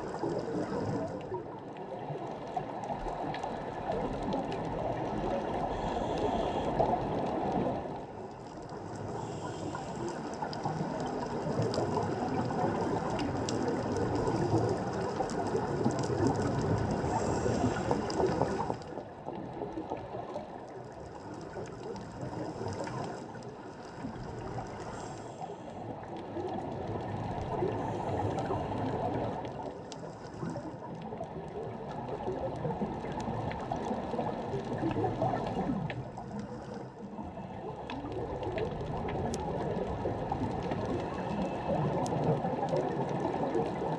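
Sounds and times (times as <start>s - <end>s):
underwater water rush: 0.0s - 43.9s.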